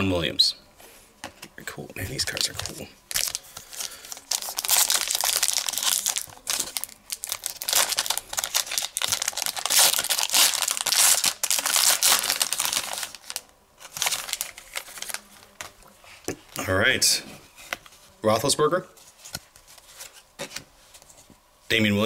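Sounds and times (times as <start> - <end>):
foil wrapper crinkling and tearing: 2.4 - 15.6.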